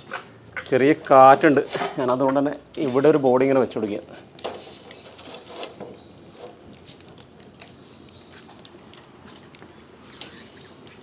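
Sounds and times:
fire crackling and popping: 0.6s - 11.0s.

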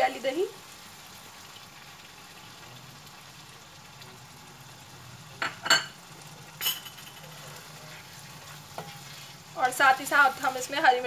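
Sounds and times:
food sizzling in a pan: 0.0s - 11.0s
kitchenware clinking against pan: 5.4s - 6.0s, 6.6s - 7.6s.

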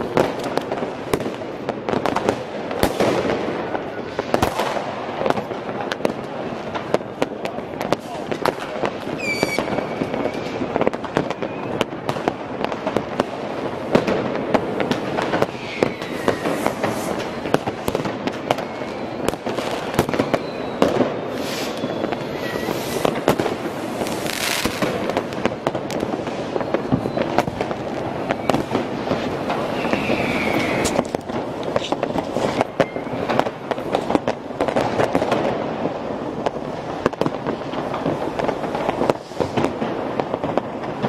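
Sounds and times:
fireworks bangs and crackling: 0.0s - 41.0s
rocket whistles: 9.2s - 10.6s, 11.3s - 11.8s, 15.4s - 17.4s, 18.6s - 19.4s, 20.0s - 23.3s, 26.4s - 27.6s, 28.3s - 28.7s, 29.6s - 31.2s, 32.4s - 33.3s
hissing bursts: 21.3s - 24.6s, 29.6s - 31.1s.

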